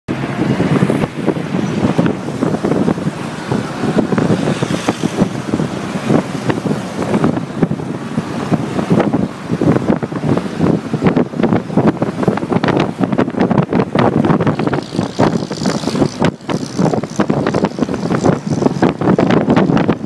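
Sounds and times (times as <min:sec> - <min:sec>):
road noise: 0:00.1 - 0:20.0
wind buffeting microphone: 0:00.1 - 0:20.0
car engine running: 0:05.1 - 0:20.0.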